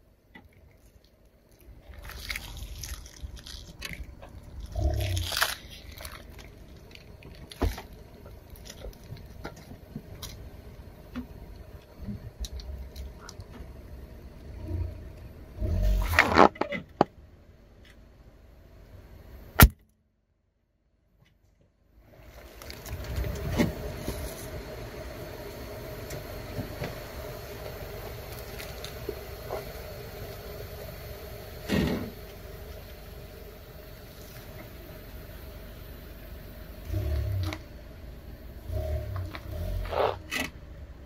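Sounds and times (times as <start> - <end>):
car engine hum: 0.0 - 19.9, 21.3 - 41.0
tyre crushing objects: 16.0 - 16.9.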